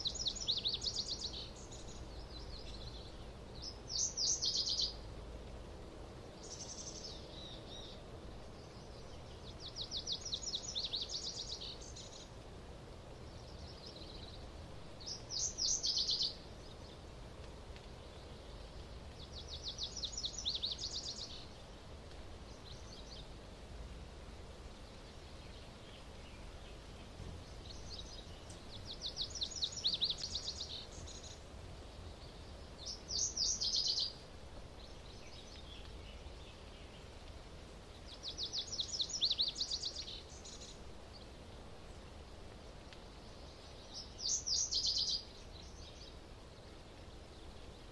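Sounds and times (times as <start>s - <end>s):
songbird trilling: 3.6s - 5.0s, 32.8s - 34.2s.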